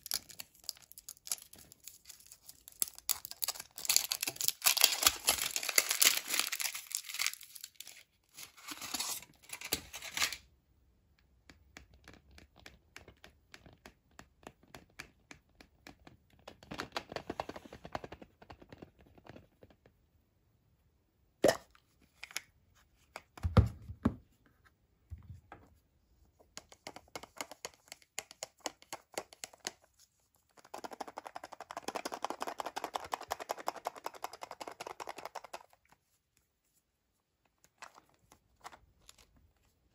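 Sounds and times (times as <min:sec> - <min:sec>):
foil wrapper crinkling and tearing: 0:00.0 - 0:10.4.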